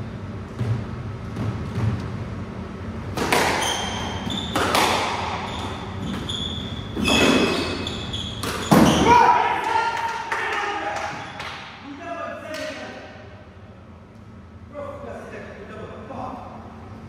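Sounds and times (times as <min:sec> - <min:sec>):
squash ball cracking off rackets: 0:03.1 - 0:06.3
shoes squeaking on wooden floor: 0:03.6 - 0:09.1.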